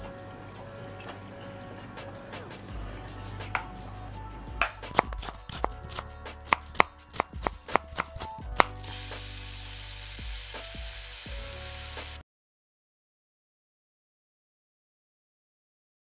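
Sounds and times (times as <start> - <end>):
background music: 0.0 - 12.2
steady hiss: 8.6 - 12.2.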